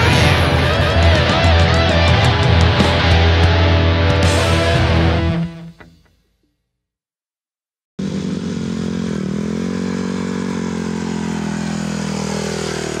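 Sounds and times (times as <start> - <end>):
motocross bike engine running: 8.0 - 13.0.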